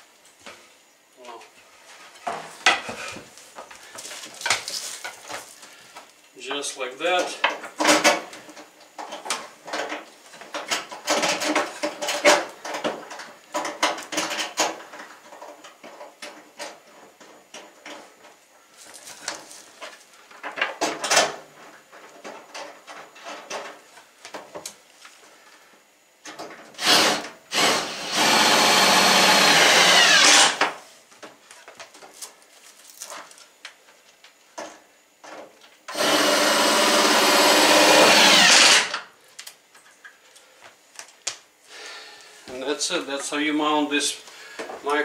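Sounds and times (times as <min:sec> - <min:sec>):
knocks and clatter of handling: 0:07.2 - 0:24.7
power drill running: 0:26.8 - 0:30.6, 0:35.9 - 0:39.0.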